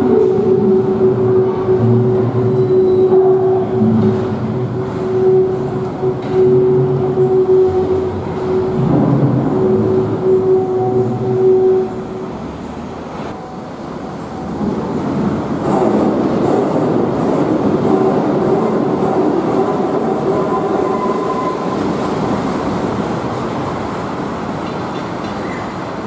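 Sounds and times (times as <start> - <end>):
monorail car rumbling: 0.0 - 26.0.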